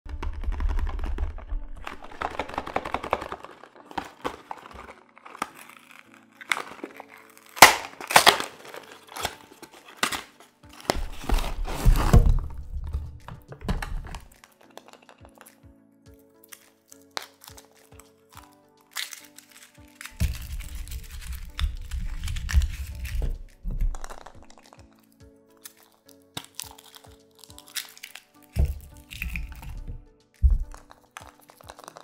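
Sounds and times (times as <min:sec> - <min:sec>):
paper crinkling: 0:00.1 - 0:32.0
cardboard box tearing open: 0:01.8 - 0:12.8, 0:19.0 - 0:24.7.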